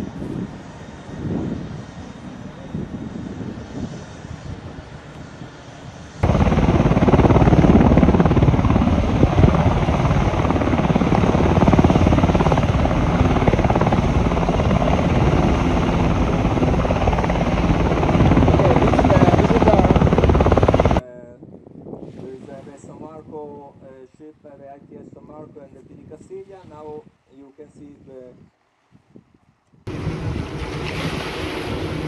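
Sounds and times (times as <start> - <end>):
helicopter rotor and engine: 0.0 - 21.0, 29.9 - 32.0
wind: 0.0 - 32.0.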